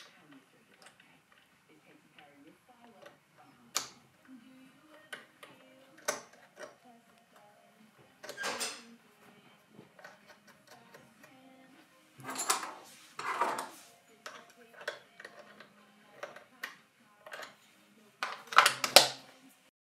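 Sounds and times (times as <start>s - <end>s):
small metal and plastic parts clicking: 4.9s - 6.8s, 8.2s - 8.9s, 12.2s - 17.6s, 18.2s - 19.3s.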